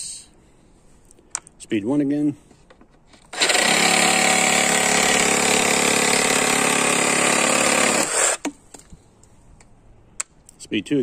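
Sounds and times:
reciprocating saw cutting wood: 0:03.3 - 0:08.5.

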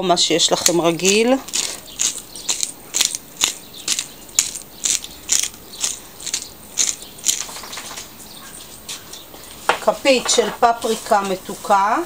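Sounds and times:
pepper grinder ratcheting: 0:00.6 - 0:07.8.

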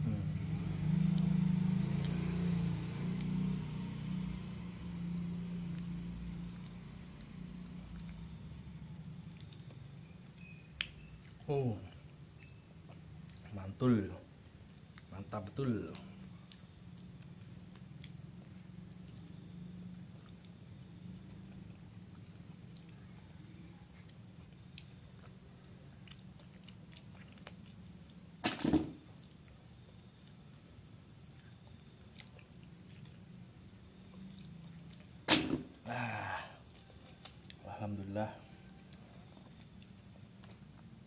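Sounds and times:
low even hum: 0:00.0 - 0:14.7
crickets chirping: 0:00.0 - 0:41.0
loud sharp knocks: 0:28.4 - 0:29.0.

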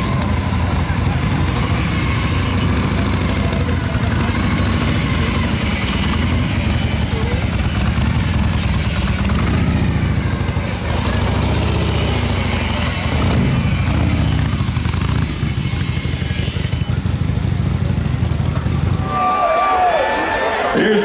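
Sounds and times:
motorcycle engine running: 0:00.0 - 0:19.5.

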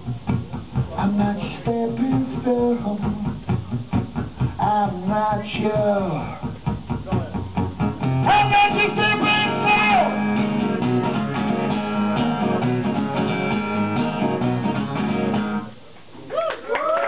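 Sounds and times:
acoustic guitar strumming: 0:00.0 - 0:15.7
man singing long note: 0:08.3 - 0:10.3.

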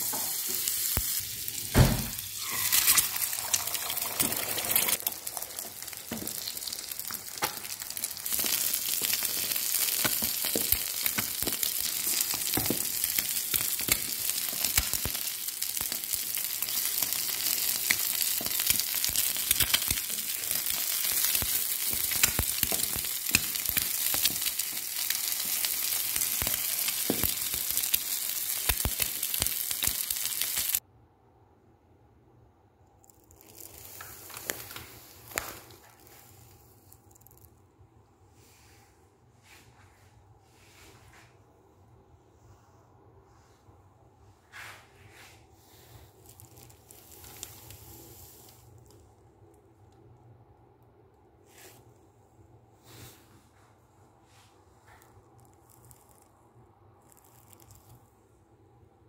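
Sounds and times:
eggs sizzling in oil: 0:00.0 - 0:30.8, 0:46.1 - 0:48.8.

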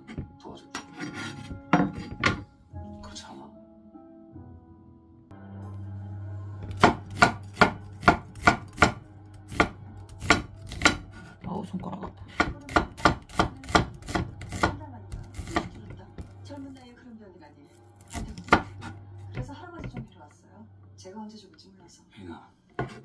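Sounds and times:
knife knocking on cutting board: 0:18.2 - 0:20.2.

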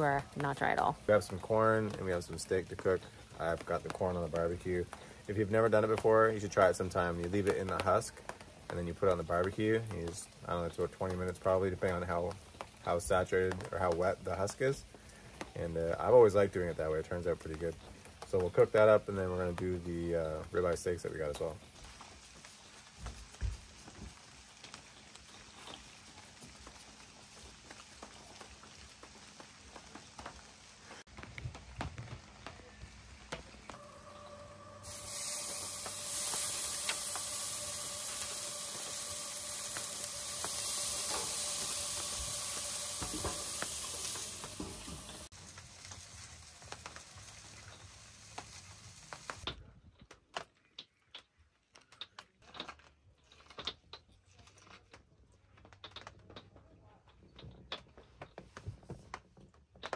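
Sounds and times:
steak sizzling on grill: 0:00.0 - 0:14.9, 0:15.6 - 0:31.1, 0:32.3 - 0:49.5.

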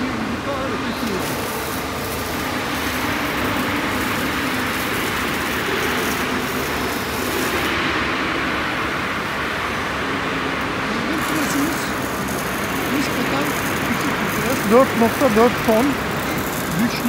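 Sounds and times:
machinery hiss: 0:00.0 - 0:17.0.

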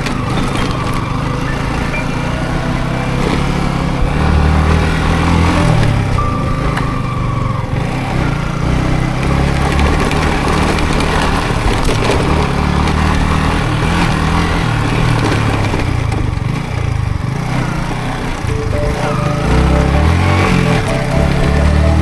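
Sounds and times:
motorcycle engine revving: 0:00.0 - 0:06.2, 0:07.2 - 0:18.5.

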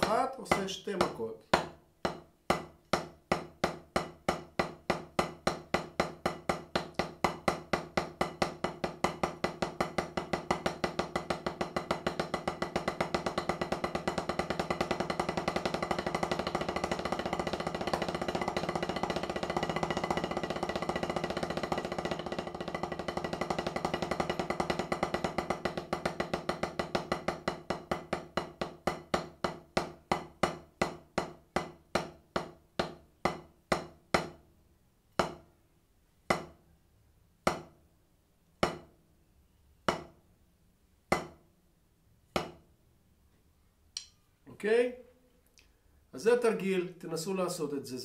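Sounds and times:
drumsticks on practice pad: 0:43.9 - 0:44.3.

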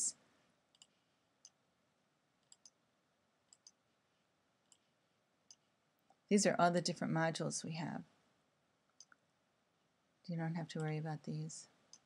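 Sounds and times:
computer mouse clicks: 0:00.7 - 0:01.6, 0:02.4 - 0:02.8, 0:03.5 - 0:03.8, 0:04.6 - 0:04.9, 0:08.9 - 0:09.2.

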